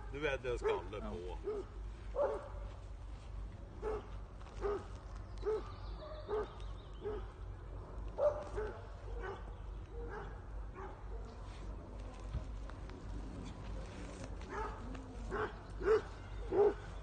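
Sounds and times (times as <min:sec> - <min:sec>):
dog barking: 0:00.6 - 0:02.6, 0:03.8 - 0:07.4, 0:08.2 - 0:11.4, 0:14.5 - 0:16.9.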